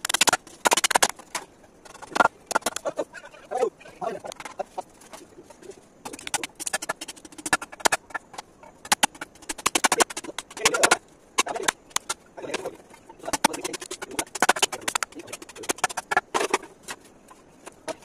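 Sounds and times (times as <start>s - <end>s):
blade chopping bamboo: 0.0s - 2.8s, 8.8s - 16.7s.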